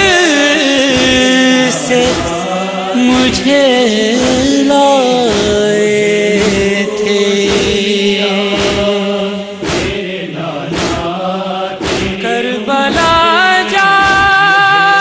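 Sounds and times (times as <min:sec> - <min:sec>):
man singing long notes: 0:00.0 - 0:09.6, 0:12.2 - 0:15.0
regular sharp strikes: 0:00.8 - 0:04.6, 0:05.2 - 0:05.6, 0:06.3 - 0:06.8, 0:07.4 - 0:10.1, 0:10.7 - 0:12.3.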